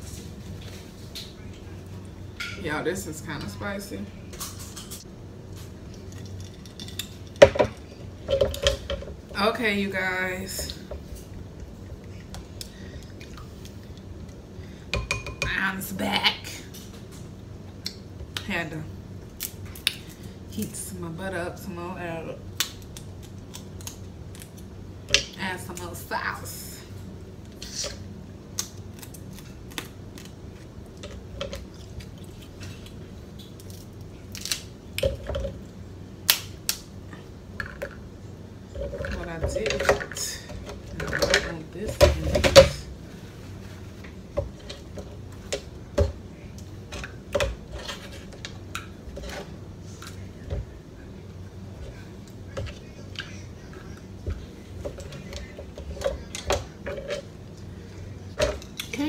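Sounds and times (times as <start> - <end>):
crab shells cracking: 22.6 - 24.7, 28.5 - 35.1.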